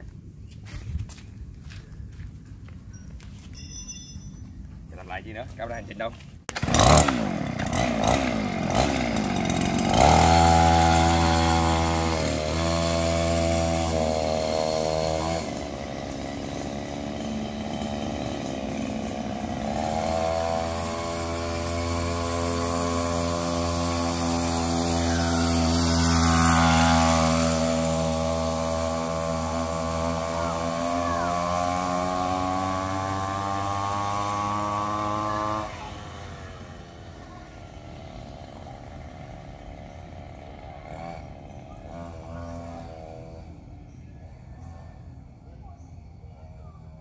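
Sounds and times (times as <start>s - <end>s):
small motorcycle engine running: 6.5s - 47.0s.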